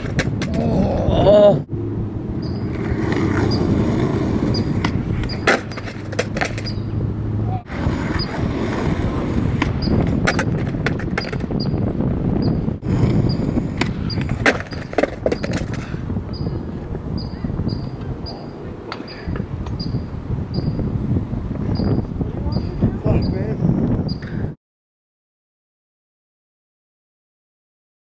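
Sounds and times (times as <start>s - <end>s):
skateboard clacking on ground: 0.0s - 0.7s, 2.7s - 6.9s, 7.9s - 11.7s, 13.0s - 16.5s
skateboard wheels rolling on concrete: 0.0s - 24.6s.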